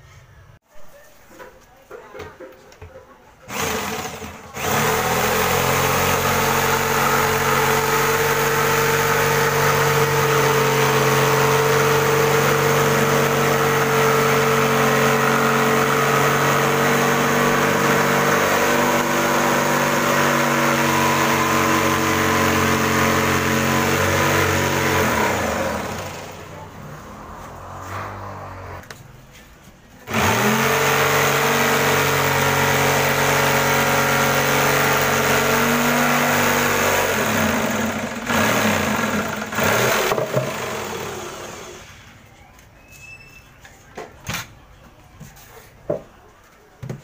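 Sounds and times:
electric jigsaw cutting wood: 3.5s - 26.5s, 30.1s - 41.8s.

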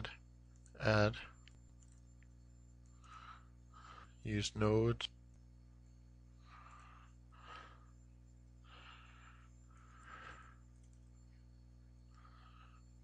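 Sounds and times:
low hum: 0.0s - 13.0s
faint breaths: 2.8s - 4.3s, 6.2s - 13.0s.

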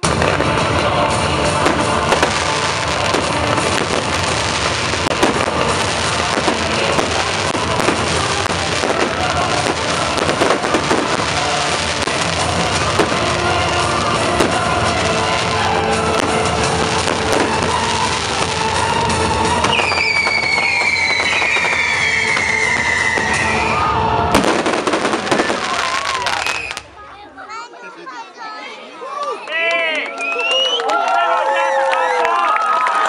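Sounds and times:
loud music: 0.0s - 26.4s
fireworks bangs and crackles: 0.0s - 27.2s.

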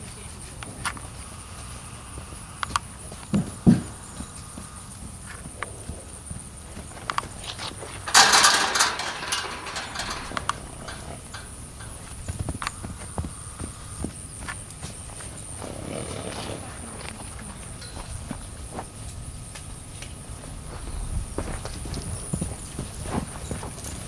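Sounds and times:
light hoof clicks: 2.6s - 24.0s
hoofbeats on packed ground: 10.8s - 24.0s.

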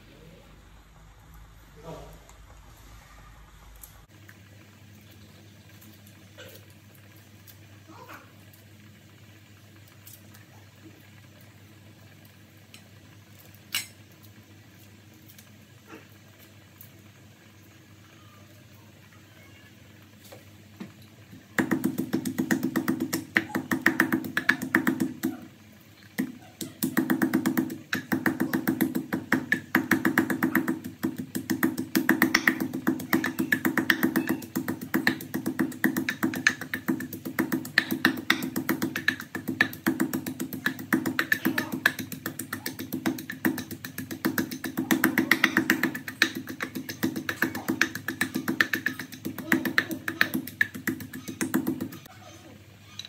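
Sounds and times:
pestle pounding in wooden mortar: 21.6s - 25.4s, 26.2s - 52.1s.

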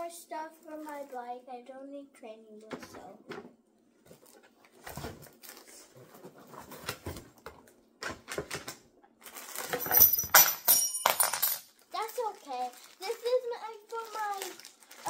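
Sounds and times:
plastic packaging crinkling: 9.2s - 9.8s, 11.8s - 15.0s.

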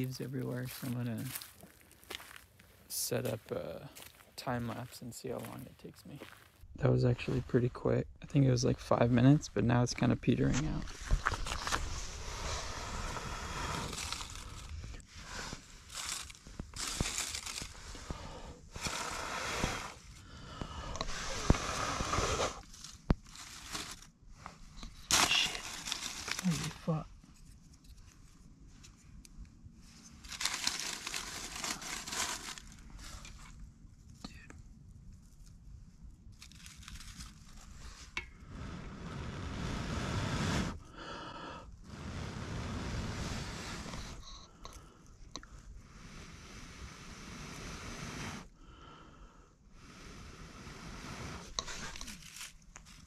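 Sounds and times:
dry leaves and twigs crunching: 0.0s - 6.6s, 10.5s - 20.2s, 22.5s - 28.9s, 30.0s - 34.2s, 36.2s - 38.2s, 51.6s - 53.0s
person blowing on embers: 10.7s - 27.1s, 36.8s - 53.0s
twigs snapping: 15.9s - 17.8s.

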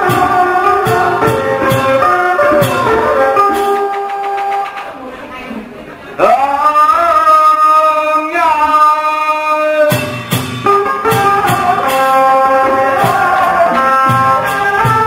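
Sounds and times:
moving melody: 0.0s - 4.6s
long held notes: 0.0s - 4.8s
drum and percussion strikes: 0.0s - 5.0s, 9.9s - 15.0s.

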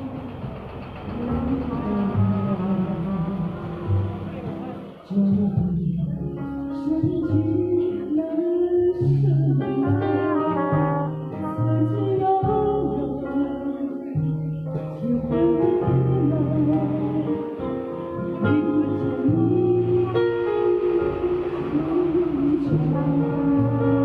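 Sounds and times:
bass line: 0.0s - 24.0s
woman singing into microphone: 1.1s - 4.2s, 5.0s - 24.0s
saxophone: 9.6s - 13.2s
trumpet: 9.7s - 12.6s, 22.6s - 24.0s.

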